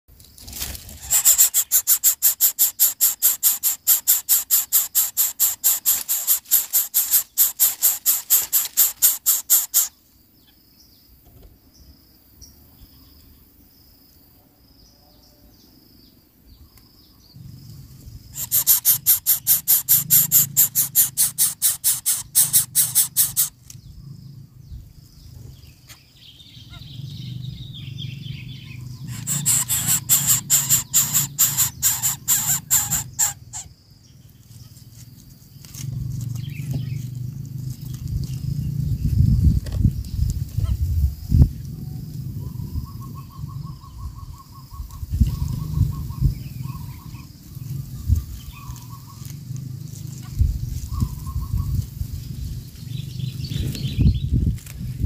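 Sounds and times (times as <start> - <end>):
nestling begging calls: 0.9 - 10.0, 18.3 - 23.6, 28.4 - 33.7.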